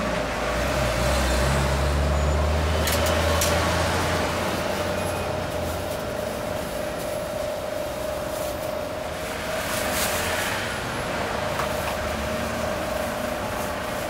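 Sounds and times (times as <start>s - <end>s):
machine hum with whine: 0.0s - 14.0s
plastic carrier bag rustling: 4.5s - 10.7s.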